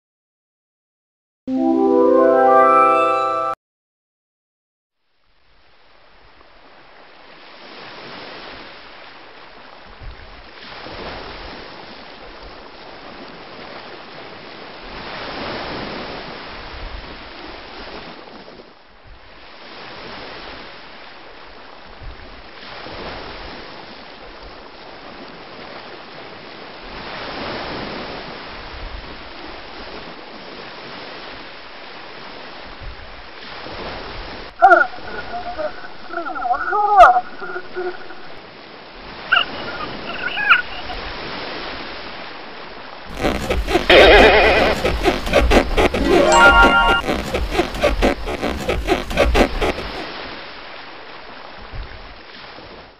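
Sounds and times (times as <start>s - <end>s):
wind: 5.2s - 52.9s
waves washing in: 19.4s - 52.9s.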